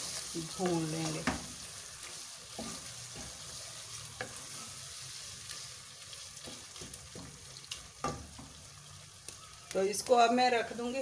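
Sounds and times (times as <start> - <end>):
wooden spatula stirring: 0.0 - 8.6
meat sizzling in oil: 0.0 - 11.0.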